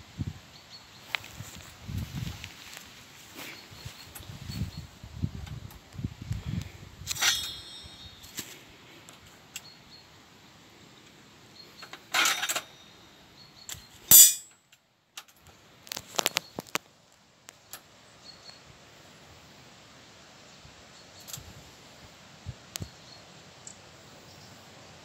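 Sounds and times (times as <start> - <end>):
wire cage trap clanking: 7.1 - 8.5, 11.8 - 12.9, 14.1 - 14.6.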